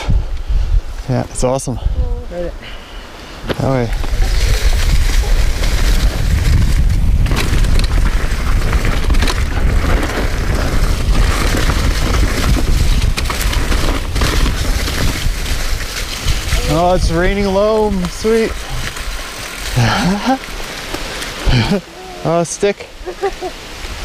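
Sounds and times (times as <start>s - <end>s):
wind on microphone: 0.0s - 2.7s, 3.4s - 20.6s
tyres crunching over leaves: 3.5s - 22.4s
bike knocks and rattles: 4.1s - 17.4s.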